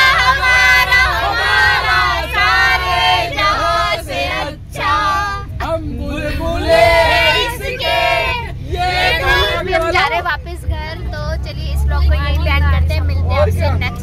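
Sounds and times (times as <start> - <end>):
group singing loudly: 0.0 - 9.9
bus rumbling: 0.0 - 14.0.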